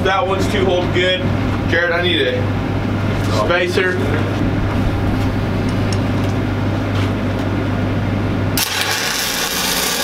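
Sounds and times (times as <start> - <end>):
low machinery hum: 0.0 - 10.0
welding arc crackling hiss: 8.6 - 10.0.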